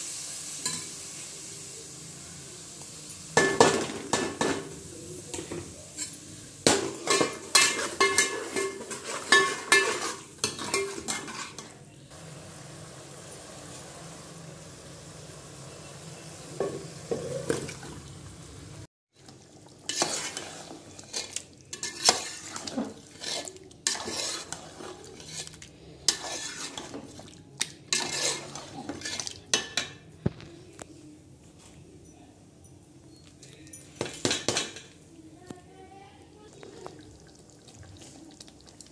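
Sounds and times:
oil sizzling: 0.0 - 29.6, 36.5 - 38.9
metal spoon scraping metal pot: 7.1 - 11.7, 19.9 - 27.1, 27.9 - 29.4.

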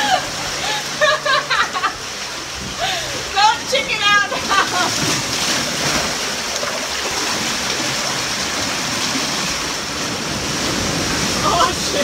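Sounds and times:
seawater rushing through channel: 0.0 - 12.0.

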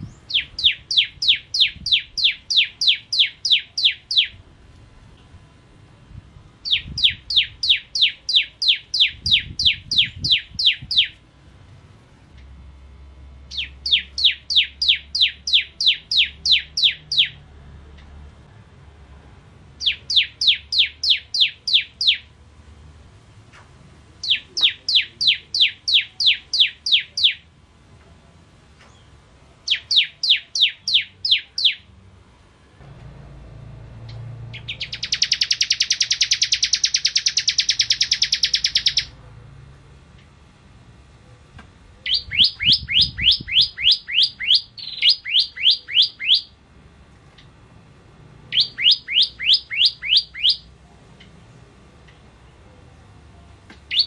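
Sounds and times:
bird singing sharp high notes: 0.0 - 4.4, 6.6 - 11.2, 13.5 - 17.4, 19.8 - 22.3, 29.7 - 31.9, 34.0 - 39.1, 42.0 - 46.6, 48.5 - 50.7.

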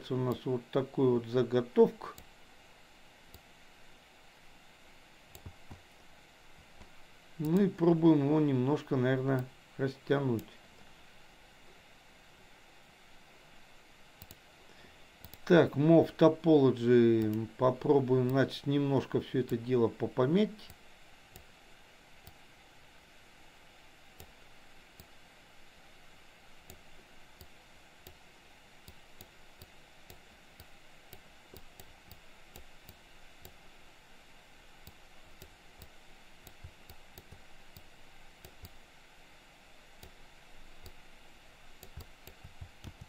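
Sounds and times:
low hiss: 0.0 - 43.0
computer mouse clicks: 5.3 - 5.9, 14.2 - 14.4, 15.2 - 15.5, 20.6 - 21.5, 22.2 - 22.4, 24.1 - 25.2, 28.8 - 33.6, 34.8 - 38.8, 40.0 - 41.0, 41.8 - 43.0.

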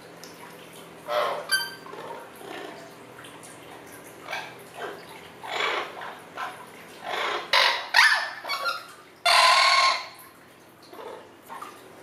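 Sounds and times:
parrot squawking: 1.1 - 1.8, 7.1 - 10.2.

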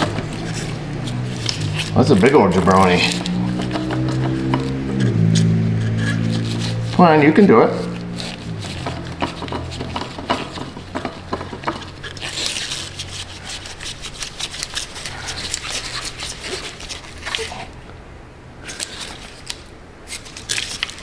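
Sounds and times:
scraping and rubbing of plastic: 0.0 - 17.8, 18.6 - 21.0.

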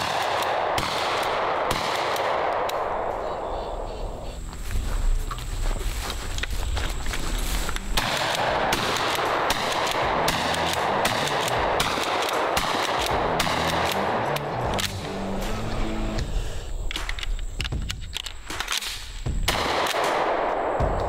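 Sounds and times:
shotgun shots: 0.0 - 3.2, 7.9 - 15.0, 18.4 - 21.0
background music: 7.4 - 21.0.

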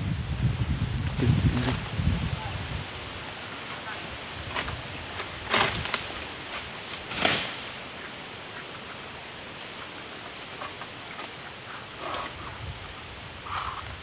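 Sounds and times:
palm fronds crashing down: 4.4 - 7.8.

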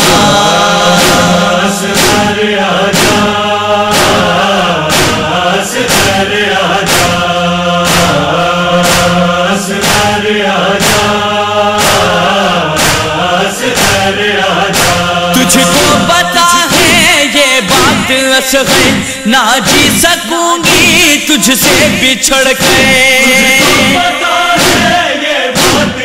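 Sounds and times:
steady beat: 0.0 - 26.0
voices chanting a lament: 0.0 - 26.0.

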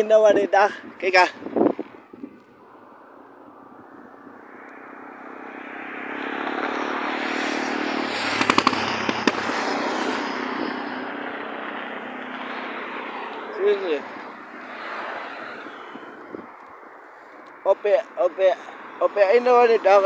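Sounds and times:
vehicle driving past: 1.8 - 17.1.

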